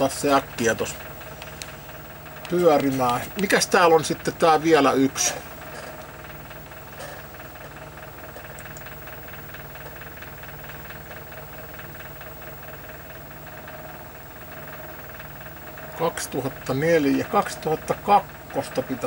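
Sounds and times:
fine ticking: 0.0 - 19.0
low hum: 0.0 - 19.0
tape transport whirring: 0.0 - 19.0.

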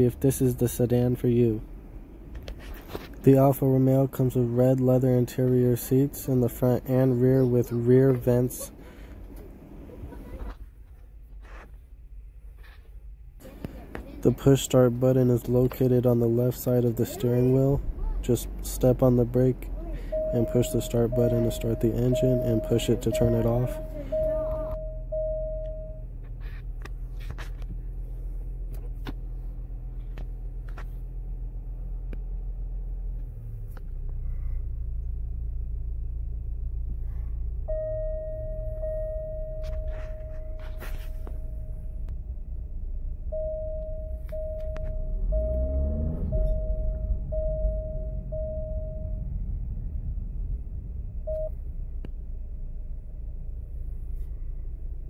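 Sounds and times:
car engine idling: 0.0 - 55.0
warning chime beeps: 18.9 - 26.1, 37.7 - 42.1, 43.3 - 49.6.

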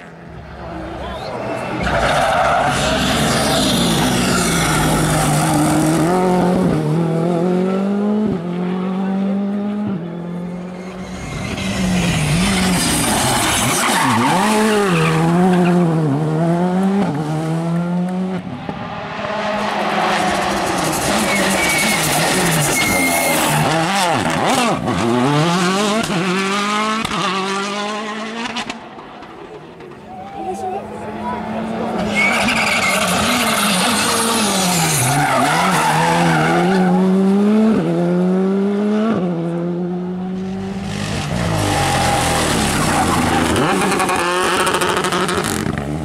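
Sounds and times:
rally car engines revving: 0.0 - 46.0.

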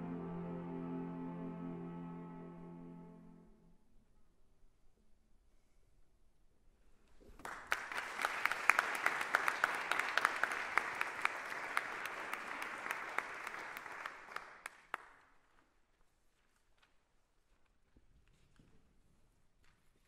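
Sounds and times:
audience applauding: 7.4 - 15.2.

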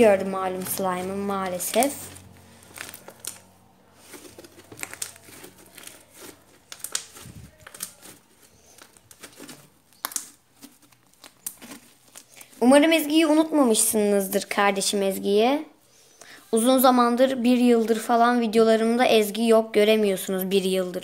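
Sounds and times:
slime sticky clicks and crackles: 2.7 - 3.5, 4.5 - 8.2, 8.8 - 12.5.

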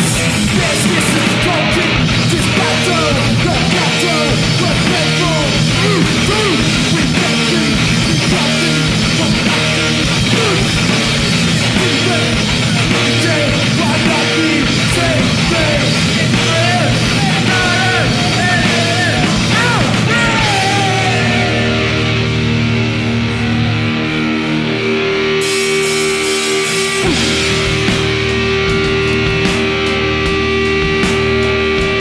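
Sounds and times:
distorted electric guitar: 0.0 - 32.0
drums: 0.0 - 32.0.

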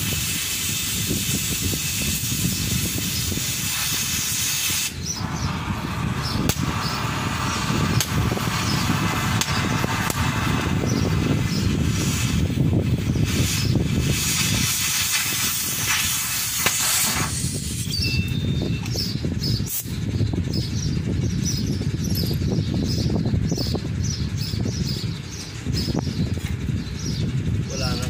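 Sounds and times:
cutting torch hissing: 0.0 - 18.1
low rumble: 5.0 - 14.8, 15.5 - 28.0
small bird chirping: 17.8 - 28.0.

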